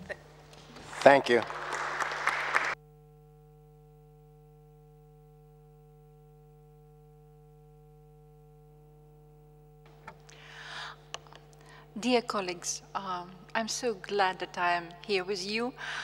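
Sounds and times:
faint electrical hum: 0:00.0 - 0:16.0
applause: 0:00.6 - 0:02.8.

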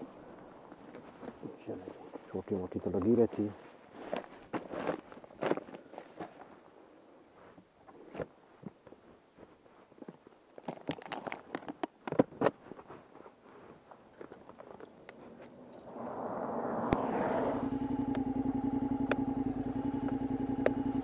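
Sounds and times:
vehicle engine: 0:14.7 - 0:21.0.

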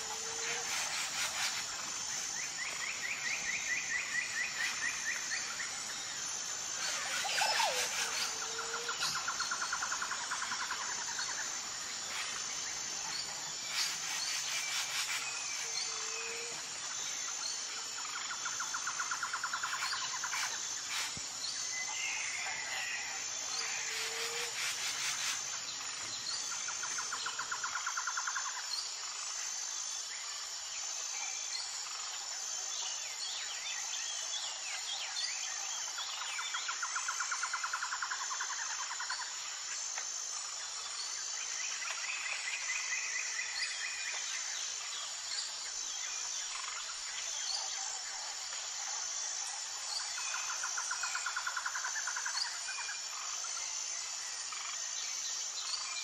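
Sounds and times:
high insect drone: 0:00.0 - 0:56.0
pulsing insect trill: 0:00.0 - 0:56.0.

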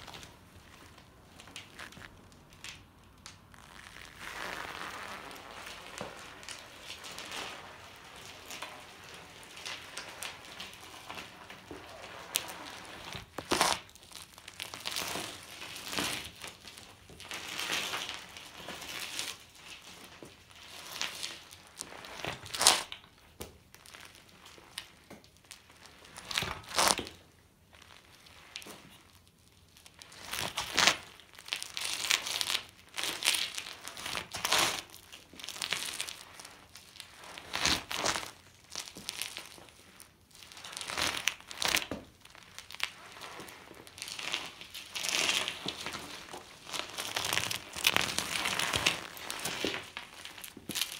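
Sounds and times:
bike tyres crunching on gritty concrete: 0:00.0 - 0:27.3, 0:30.0 - 0:50.9.

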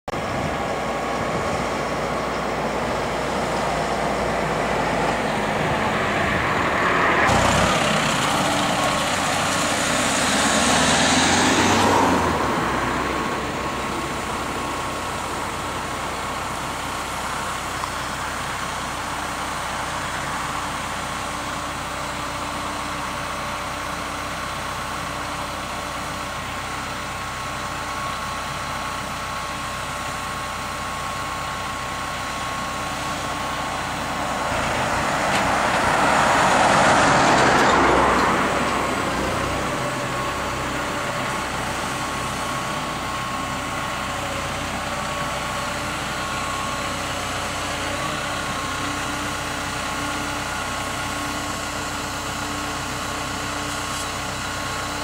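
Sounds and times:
tractor engine running: 0:00.1 - 0:55.0
lorry driving past: 0:00.6 - 0:16.3, 0:33.1 - 0:44.2.

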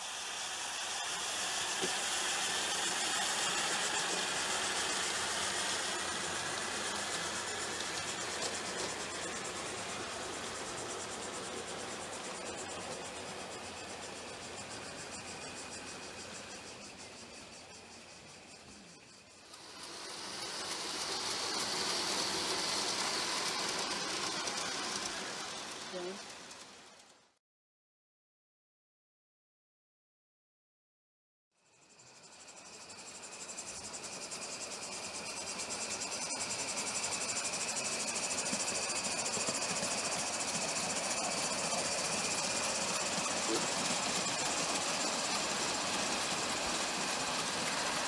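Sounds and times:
steam hissing: 0:00.0 - 0:27.1, 0:31.9 - 0:48.0
steam locomotive exhaust beats: 0:00.0 - 0:27.1, 0:32.5 - 0:48.0
wheels rolling on rails: 0:01.2 - 0:14.0, 0:19.4 - 0:27.2, 0:35.3 - 0:48.0.

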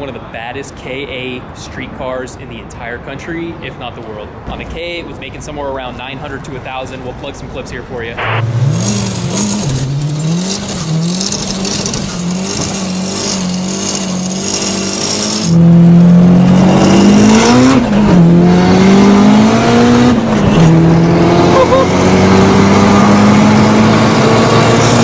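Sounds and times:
turbocharged car engine revving: 0:08.2 - 0:25.0.

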